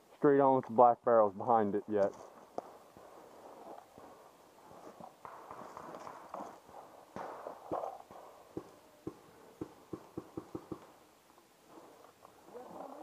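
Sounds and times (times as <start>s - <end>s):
rustling and shuffling: 1.9s - 9.8s, 10.8s - 13.0s.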